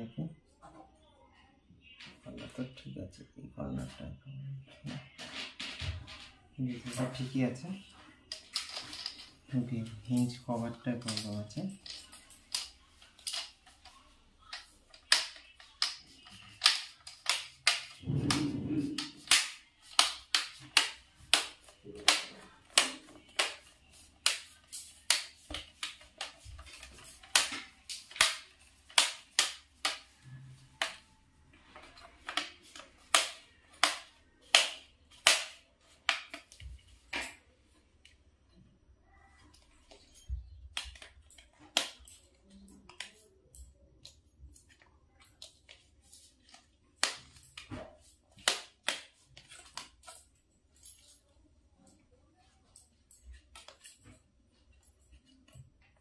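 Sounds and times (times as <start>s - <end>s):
plastic clicks and snaps: 11.0s - 31.2s, 31.8s - 37.4s, 39.5s - 51.2s.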